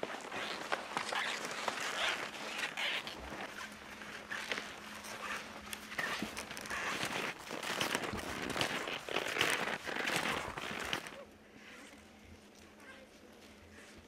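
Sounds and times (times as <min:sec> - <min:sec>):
skis swishing over snow: 0:00.0 - 0:11.2.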